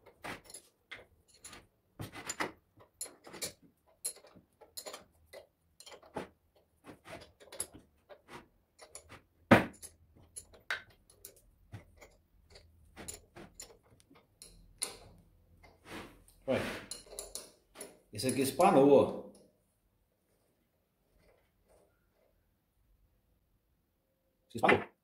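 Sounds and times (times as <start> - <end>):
wrench clinking on bolts: 0.1 - 6.2, 8.8 - 15.2, 16.9 - 18.8.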